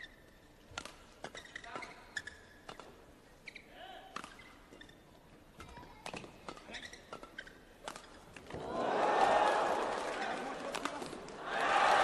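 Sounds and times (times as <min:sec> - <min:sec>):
shoe squeaks: 0:00.0 - 0:00.4, 0:01.2 - 0:05.8, 0:06.6 - 0:08.3
rackets hitting shuttlecock: 0:05.6 - 0:08.6
crowd noise: 0:08.5 - 0:12.0.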